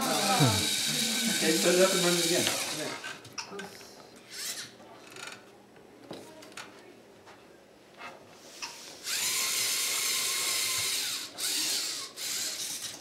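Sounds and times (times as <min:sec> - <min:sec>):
robot electric motors whirring: 0:00.0 - 0:03.1, 0:04.3 - 0:04.7, 0:08.8 - 0:13.0.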